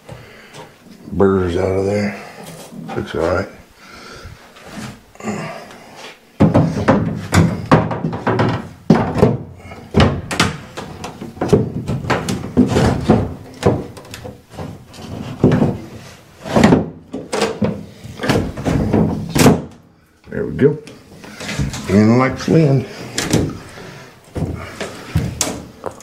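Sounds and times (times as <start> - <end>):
plastic panel thunks and knocks: 6.4 - 15.9.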